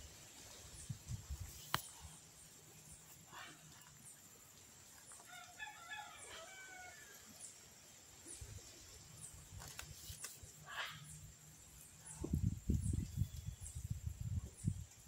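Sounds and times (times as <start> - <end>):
rooster crowing: 5.3 - 7.2.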